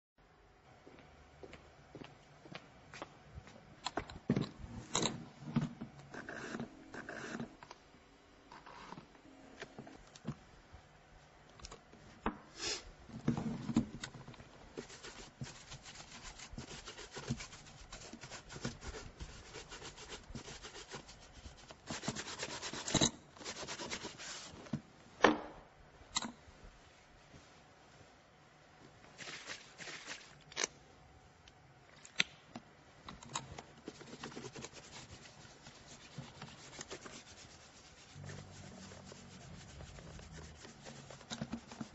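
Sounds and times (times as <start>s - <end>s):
cloth brushing leather shoe: 14.7s - 24.6s, 29.2s - 30.4s, 33.8s - 41.9s.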